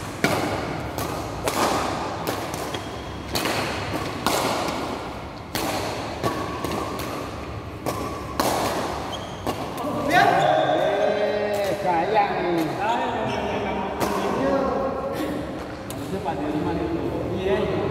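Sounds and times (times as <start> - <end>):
racket hitting shuttlecock: 0.0 - 10.4.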